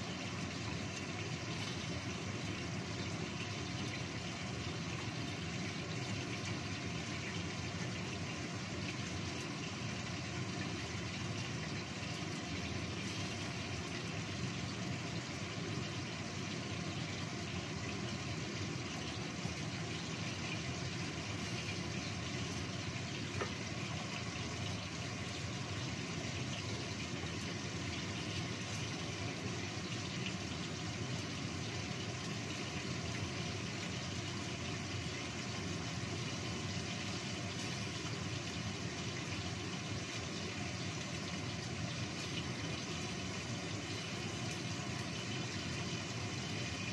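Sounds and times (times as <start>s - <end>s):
gas stove burner hissing: 0.0s - 46.9s
sauce simmering under lid: 0.0s - 46.9s.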